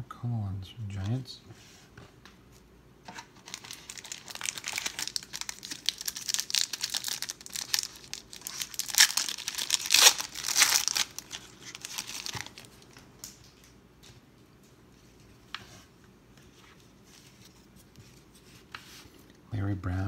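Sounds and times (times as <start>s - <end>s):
foil wrapper tearing and crinkling: 3.4s - 13.4s.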